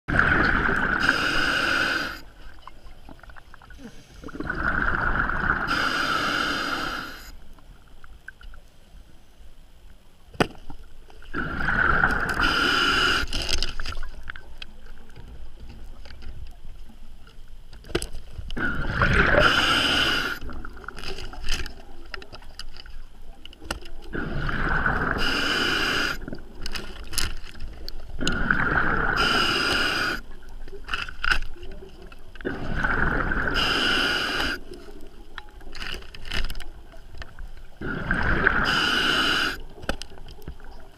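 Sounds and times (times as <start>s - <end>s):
exhaled bubbles gushing: 0.1s - 6.0s, 11.2s - 14.5s, 18.6s - 22.5s, 24.0s - 27.2s, 28.0s - 30.9s, 32.4s - 34.7s, 36.6s - 40.9s
regulator hiss: 0.8s - 2.3s, 5.5s - 7.4s, 11.9s - 13.4s, 18.6s - 20.5s, 25.0s - 26.4s, 29.0s - 30.3s, 33.4s - 34.8s, 38.4s - 39.7s.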